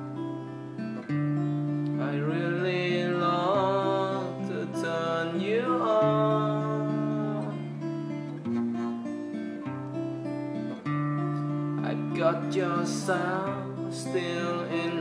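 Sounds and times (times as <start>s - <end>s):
acoustic guitar strumming: 0.0s - 15.0s
person singing without words: 1.8s - 7.8s, 11.7s - 15.0s.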